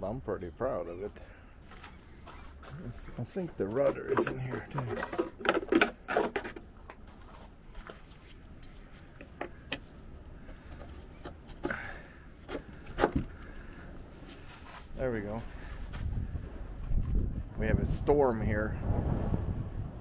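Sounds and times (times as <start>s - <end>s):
wind rumble on microphone: 15.2s - 20.0s.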